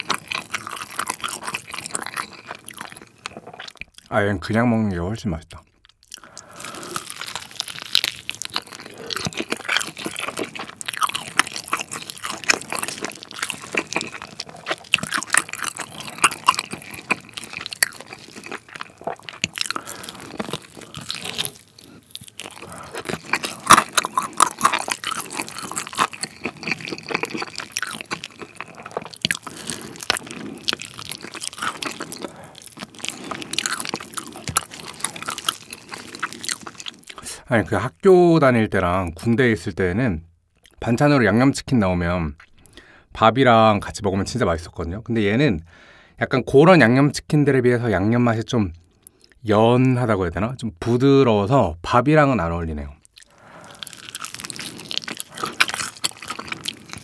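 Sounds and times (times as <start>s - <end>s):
bites crunching fried chicken: 0.0s - 4.1s, 5.5s - 37.4s, 53.0s - 57.0s
chewing with wet mouth sounds: 0.0s - 4.2s, 5.4s - 37.4s, 42.3s - 42.8s, 53.0s - 57.0s.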